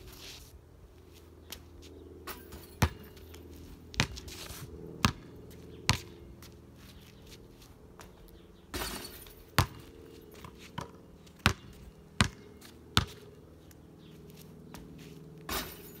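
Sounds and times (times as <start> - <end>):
basketball bouncing on concrete: 2.3 - 4.4, 5.0 - 6.6, 8.0 - 13.4, 14.7 - 15.9.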